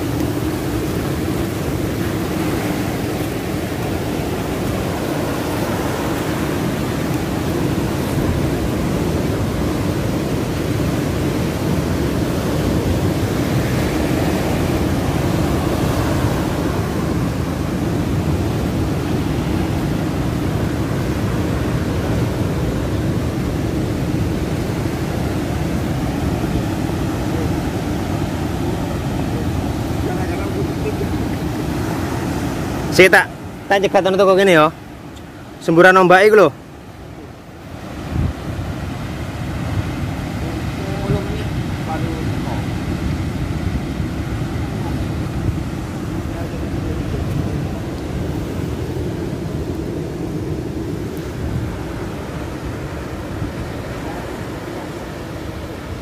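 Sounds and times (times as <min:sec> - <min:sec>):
ocean surf breaking on rocks: 0:00.0 - 0:56.0.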